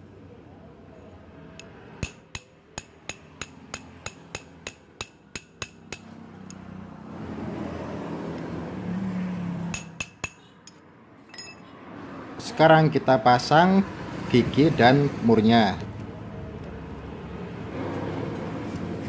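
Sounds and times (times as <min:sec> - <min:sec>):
rapid metal tapping: 0:02.0 - 0:06.1.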